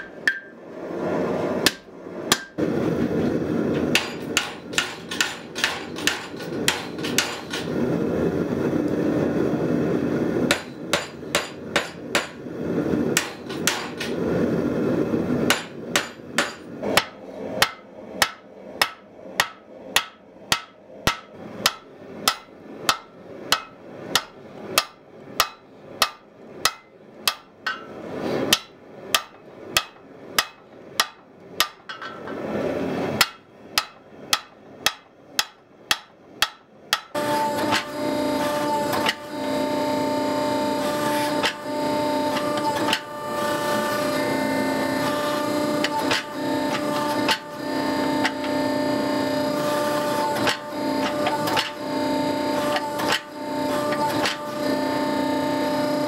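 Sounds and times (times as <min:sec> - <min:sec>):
hammer striking hot steel: 0:00.0 - 0:00.6, 0:01.6 - 0:02.6, 0:03.7 - 0:07.8, 0:10.5 - 0:12.5, 0:13.1 - 0:14.2, 0:15.4 - 0:32.4, 0:33.2 - 0:39.4, 0:41.1 - 0:44.1, 0:45.0 - 0:48.6, 0:49.6 - 0:51.8, 0:52.6 - 0:53.3, 0:53.9 - 0:54.5.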